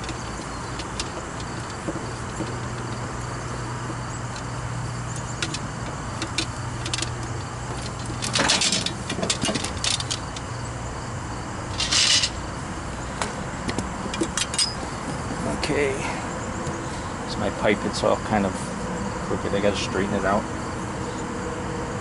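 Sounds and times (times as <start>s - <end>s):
tools clinking: 0.0s - 10.4s, 11.7s - 12.4s, 13.7s - 14.9s.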